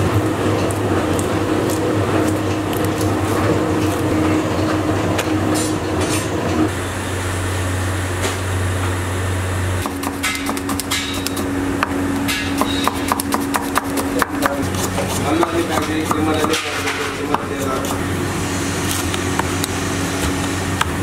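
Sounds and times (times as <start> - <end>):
steady low hum: 0.0 - 21.0
knife chopping on wooden block: 9.8 - 18.0.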